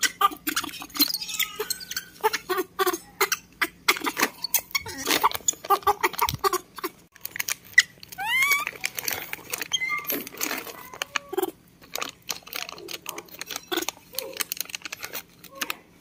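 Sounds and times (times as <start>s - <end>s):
young monkeys squeaking: 0.0s - 7.0s, 7.7s - 11.6s, 13.5s - 14.4s
monkey rising squeal: 0.6s - 2.4s, 8.2s - 8.8s.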